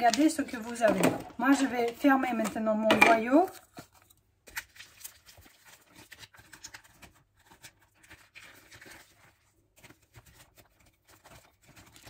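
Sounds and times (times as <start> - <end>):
sausage casing crinkling: 0.0 - 2.6.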